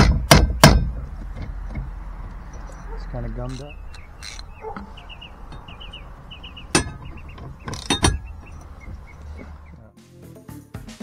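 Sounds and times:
ratchet wrench clicking: 0:03.5 - 0:04.6.

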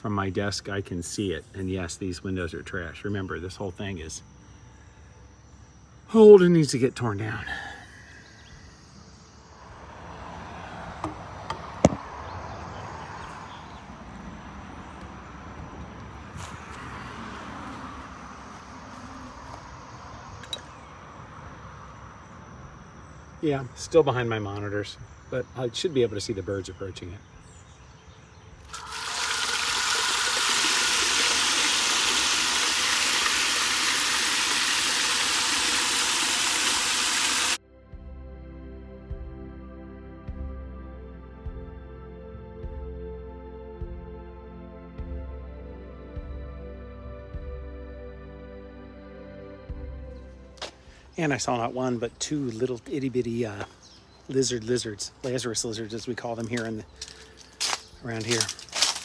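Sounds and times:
outdoor background rush: 0:00.0 - 0:37.6, 0:40.3 - 0:59.0
hose spray splashing into water: 0:28.7 - 0:37.6.

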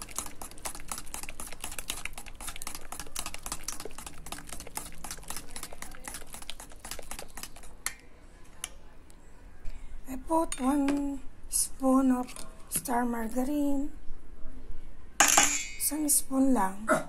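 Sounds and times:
fork beating batter in metal bowl: 0:00.0 - 0:08.0.

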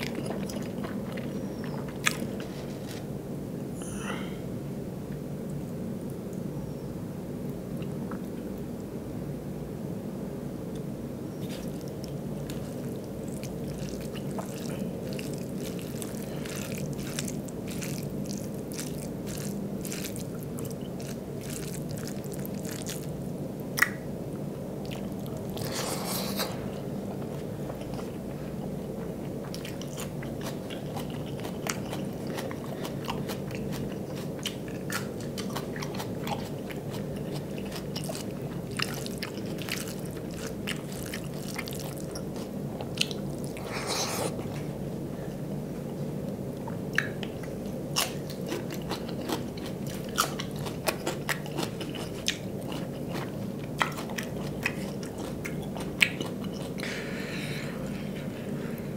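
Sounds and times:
chewing and mouth clicks: 0:00.0 - 0:03.0, 0:11.4 - 0:24.0, 0:24.8 - 0:44.6, 0:46.6 - 0:56.9
food squished by hand: 0:11.5 - 0:23.1.

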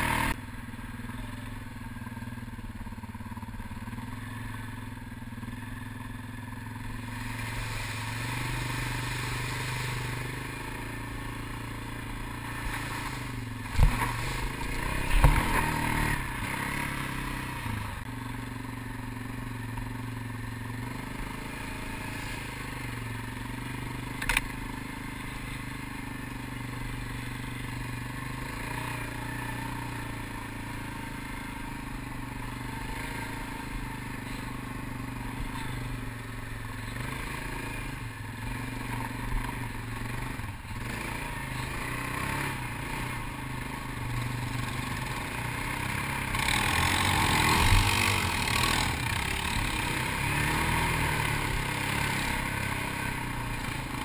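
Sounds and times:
quad bike engine revving: 0:00.0 - 0:54.0
sharp click: 0:24.2 - 0:24.6.

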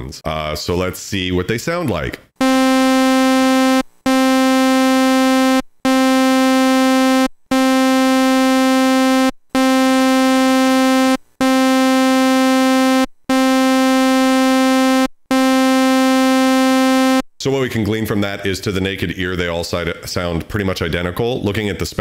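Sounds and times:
synthesizer held note: 0:02.4 - 0:17.2.

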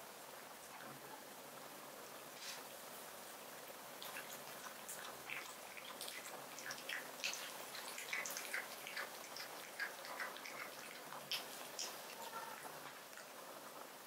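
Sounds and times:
cat lapping wet clicks: 0:04.0 - 0:13.4.

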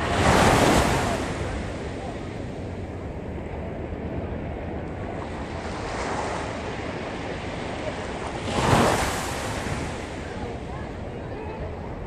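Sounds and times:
ocean wave breaking on sand: 0:00.0 - 0:02.0, 0:05.2 - 0:10.3
low surf washing: 0:00.0 - 0:12.0.

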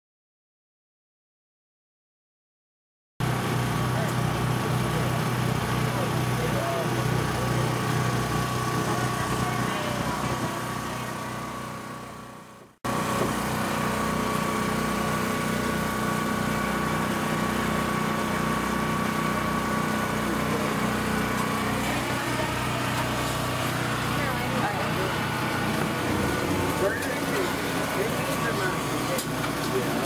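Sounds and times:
machinery drone with steady tones: 0:08.5 - 0:30.0.

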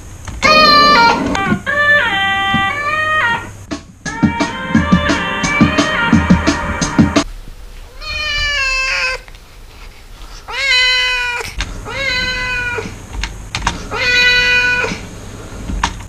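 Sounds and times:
cat meowing: 0:00.4 - 0:03.5, 0:07.9 - 0:09.3, 0:10.5 - 0:12.9, 0:13.8 - 0:15.0.

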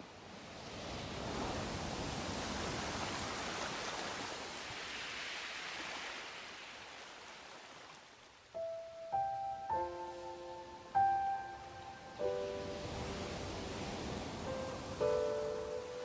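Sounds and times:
ocean surf rushing: 0:08.6 - 0:16.0.

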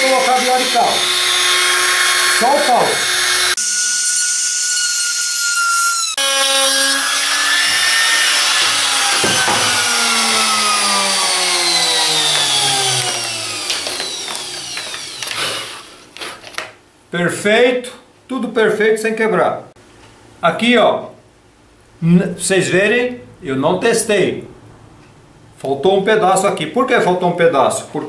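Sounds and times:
trim router running: 0:00.0 - 0:16.0
motor winding down whine: 0:05.4 - 0:16.0.

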